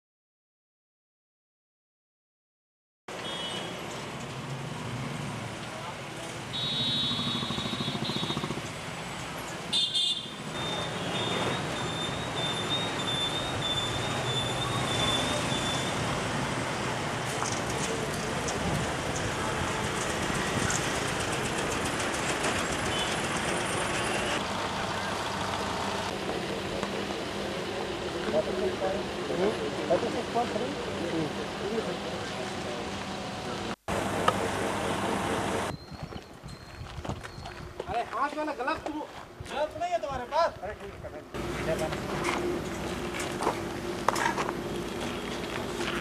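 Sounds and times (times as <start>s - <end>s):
traffic passing on street: 3.1s - 46.0s
horn honks: 3.2s - 3.8s, 6.5s - 8.6s, 9.7s - 16.0s, 22.8s - 23.3s.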